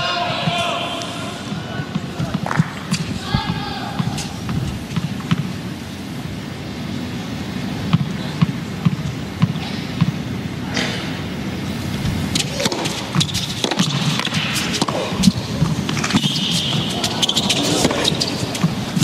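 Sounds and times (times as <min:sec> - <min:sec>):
crowd noise: 0:00.0 - 0:19.0
indoor arena hum: 0:00.0 - 0:19.0
tennis ball bouncing on court: 0:01.5 - 0:05.5, 0:07.9 - 0:10.2, 0:12.3 - 0:19.0
racket striking ball: 0:01.9 - 0:05.5, 0:12.3 - 0:19.0.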